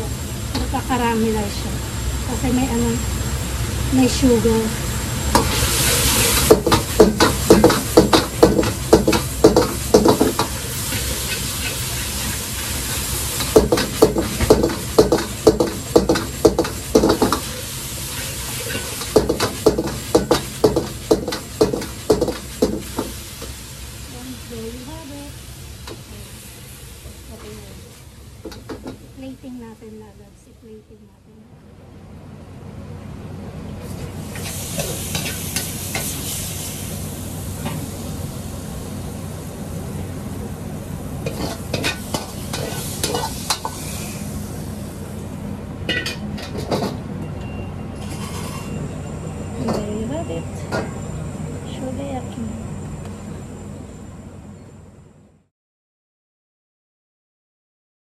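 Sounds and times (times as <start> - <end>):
food sizzling: 0.0 - 30.2, 33.8 - 47.0, 47.9 - 52.9
gas burner rumble: 0.0 - 55.5
metal ladle scraping a wok: 9.6 - 22.6, 41.3 - 44.2, 48.0 - 48.8
metal ladle scraping a pan: 48.0 - 48.8.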